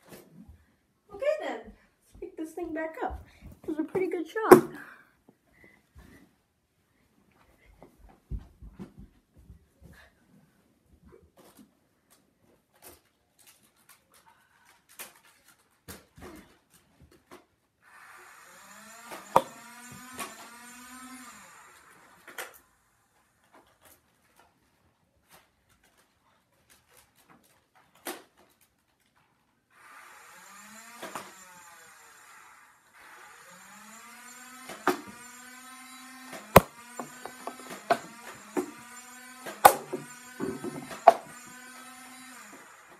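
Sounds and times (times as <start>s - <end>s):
darts firing clicks: 19.4s - 19.6s, 36.6s - 38.7s, 39.7s - 41.4s.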